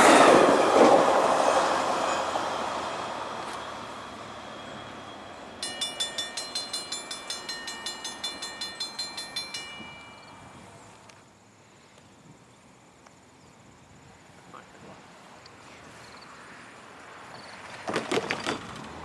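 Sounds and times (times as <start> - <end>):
train rumble: 0.0 - 11.2
crossing bell ringing: 4.2 - 11.1.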